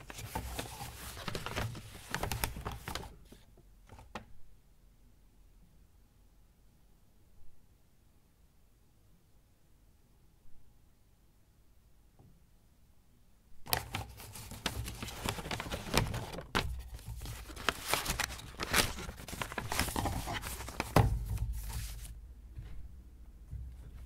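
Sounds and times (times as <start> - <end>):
paper rustling and crinkling: 0.0 - 4.0, 13.7 - 22.2.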